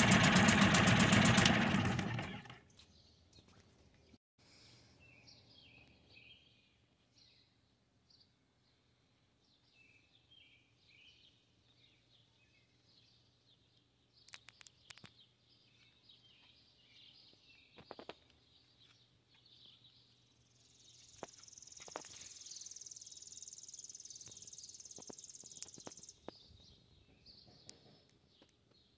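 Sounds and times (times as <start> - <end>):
small bird chirps: 9.6 - 28.9.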